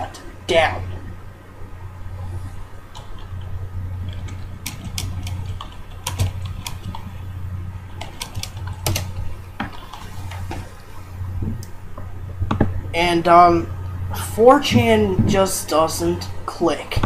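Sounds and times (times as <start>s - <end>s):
steady low hum: 0.0s - 17.0s
typing on computer keyboard: 4.1s - 7.1s, 8.0s - 10.1s.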